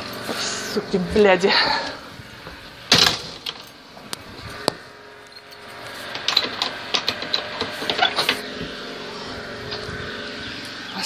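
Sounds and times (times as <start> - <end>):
wooden gate knocks and clicks: 2.9 - 3.7, 6.1 - 8.4.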